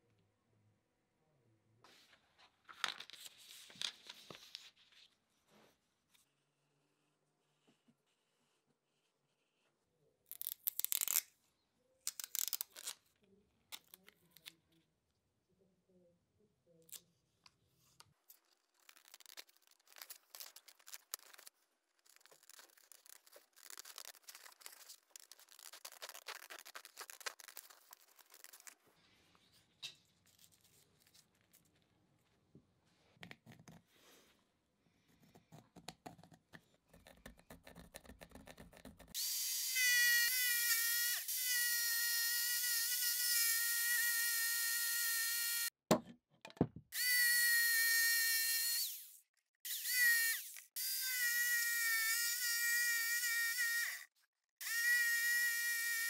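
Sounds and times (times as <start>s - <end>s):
paper handling: 1.9s - 5.2s, 18.0s - 31.8s
scissors snipping paper: 18.3s - 28.8s
masking tape ripping: 18.5s - 28.8s.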